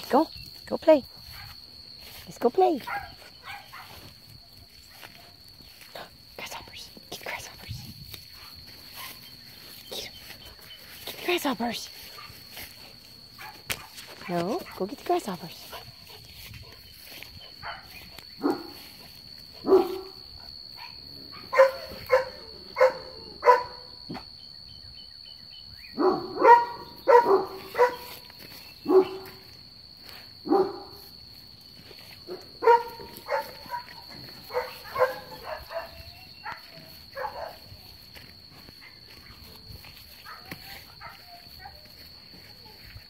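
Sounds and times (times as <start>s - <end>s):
dog barking: 2.9s - 4.0s, 13.4s - 14.8s, 17.5s - 18.8s, 19.6s - 20.2s, 20.8s - 24.2s, 26.0s - 28.2s, 28.8s - 29.4s, 30.4s - 31.0s, 32.3s - 37.6s, 40.2s - 41.9s.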